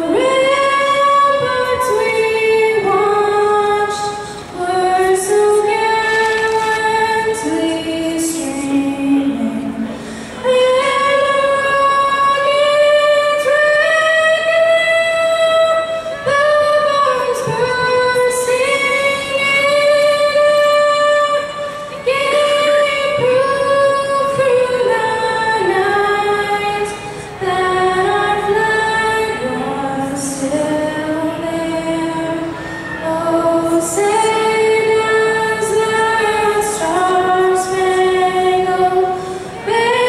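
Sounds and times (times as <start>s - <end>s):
girl singing into a microphone: 0.0s - 40.0s.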